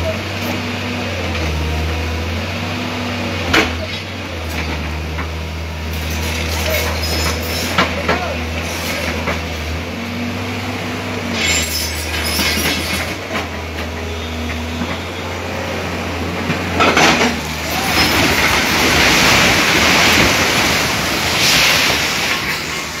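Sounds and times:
excavator diesel engine running: 0:00.0 - 0:23.0
grinding and crumbling debris: 0:00.0 - 0:23.0
sharp crash: 0:17.1 - 0:23.0.

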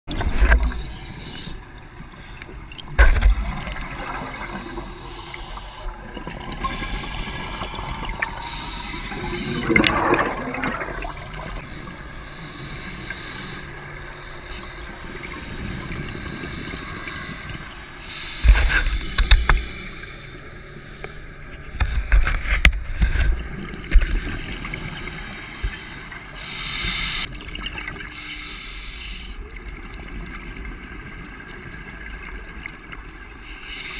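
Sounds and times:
underwater rush: 0:00.1 - 0:33.9
bubbles gurgling: 0:02.8 - 0:04.9, 0:09.1 - 0:11.6.

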